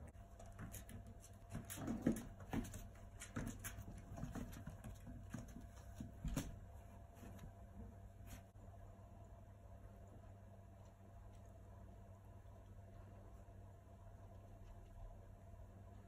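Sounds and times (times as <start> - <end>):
puppies scuffling: 0.1 - 8.5
rustling of puppy pad: 0.1 - 8.6
paw and claw taps: 0.4 - 6.6.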